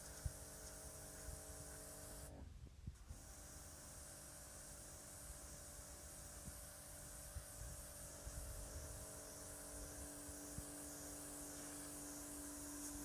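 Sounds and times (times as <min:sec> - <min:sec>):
pressure washer motor humming: 0:09.0 - 0:13.0.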